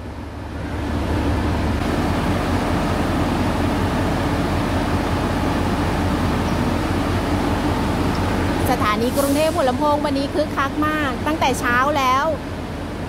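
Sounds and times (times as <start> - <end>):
diesel train engine drone: 0.0 - 13.0.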